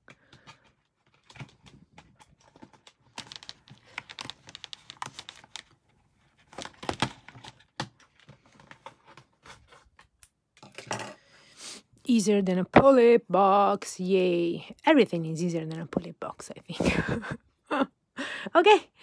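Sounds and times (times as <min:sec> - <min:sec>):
plastic packaging clicks and rustles: 0:00.0 - 0:10.9.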